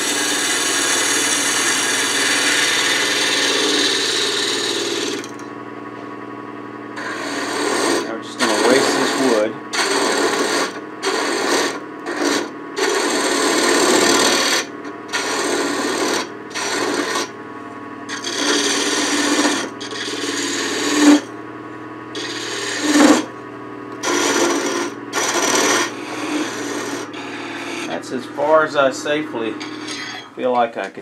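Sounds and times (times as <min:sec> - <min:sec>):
gouge cutting spinning wood: 0:00.0 - 0:05.6, 0:06.8 - 0:17.4, 0:18.0 - 0:21.4, 0:22.0 - 0:30.8.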